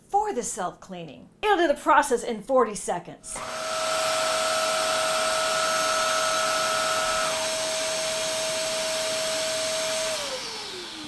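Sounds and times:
vacuum mop motor whine: 3.3s - 11.0s.

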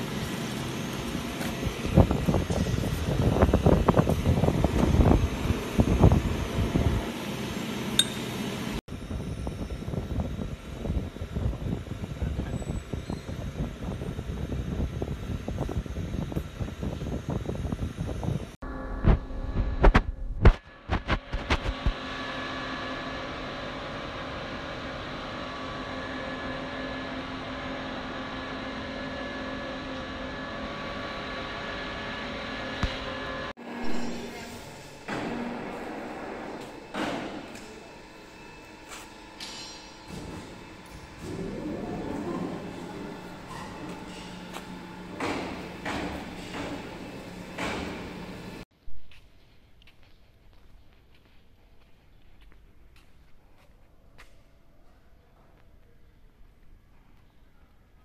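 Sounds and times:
machine hum: 0.0s - 48.7s
sharp metallic clink: 8.0s - 8.3s.

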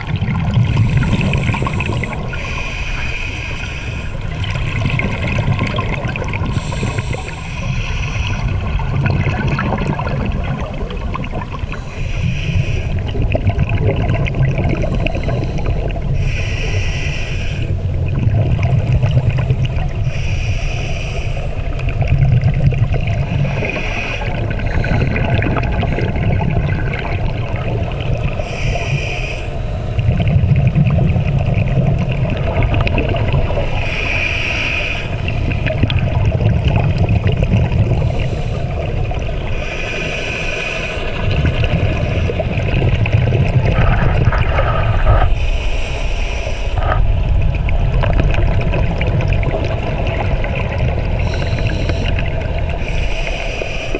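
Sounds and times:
exhaled bubbles rumbling: 0.0s - 3.3s, 3.9s - 16.8s, 17.6s - 20.3s, 21.4s - 29.0s, 29.6s - 40.4s, 41.0s - 53.9s
regulator hiss on inhale: 0.7s - 4.3s, 6.5s - 8.6s, 11.7s - 13.1s, 14.8s - 17.8s, 20.0s - 21.8s, 23.3s - 26.2s, 28.4s - 30.0s, 33.7s - 35.8s, 38.0s - 38.9s, 39.5s - 41.3s, 44.7s - 47.0s, 51.2s - 53.9s.

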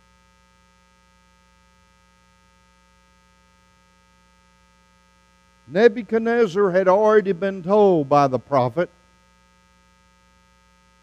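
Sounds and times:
faint electrical hum: 0.0s - 11.0s.

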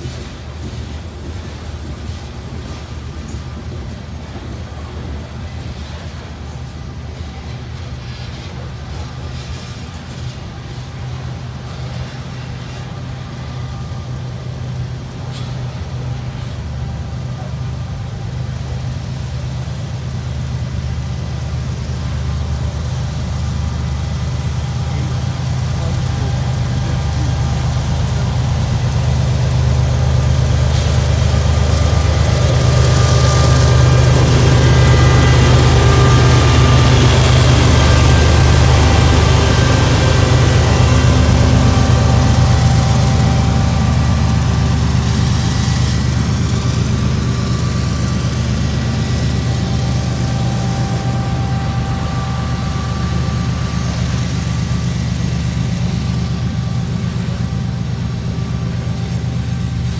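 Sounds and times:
diesel locomotive engine hum: 0.0s - 59.9s
freight cars rumbling past: 25.8s - 59.9s.

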